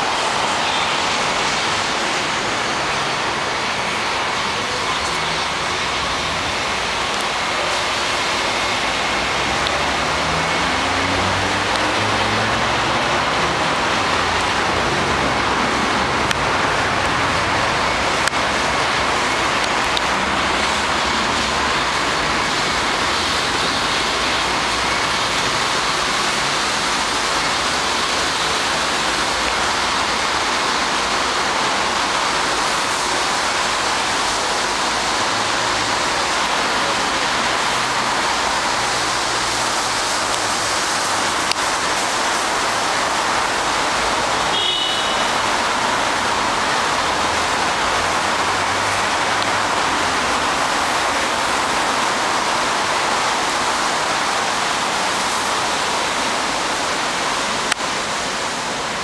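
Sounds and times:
street roar: 0:00.0 - 0:59.0.

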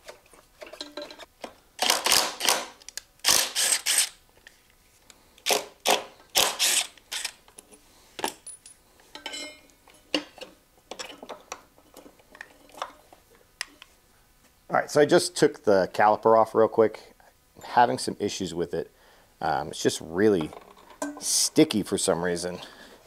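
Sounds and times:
metal tools clicking and scraping: 0:00.6 - 0:01.3, 0:06.4 - 0:13.0.

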